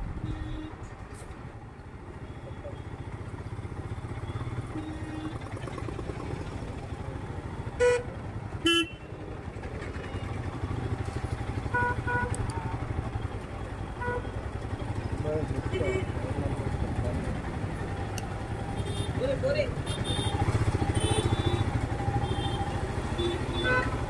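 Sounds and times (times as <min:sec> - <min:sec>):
horn honks: 0:00.2 - 0:00.9, 0:04.6 - 0:05.5, 0:07.8 - 0:09.1, 0:11.6 - 0:12.8, 0:14.0 - 0:14.3, 0:18.7 - 0:19.2, 0:19.8 - 0:24.0
motorcycle engine running: 0:03.1 - 0:24.0.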